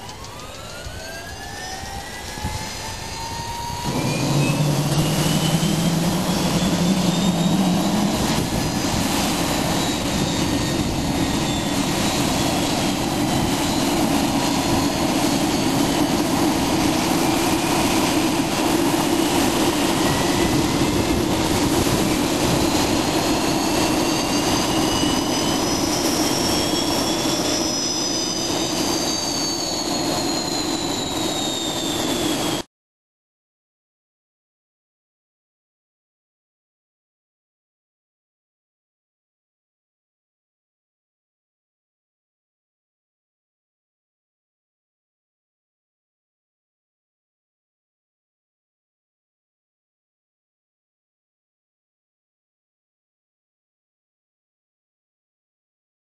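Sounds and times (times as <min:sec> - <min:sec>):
helicopter turbine engine starting: 0:00.0 - 0:32.7
high turbine whine: 0:00.0 - 0:32.7.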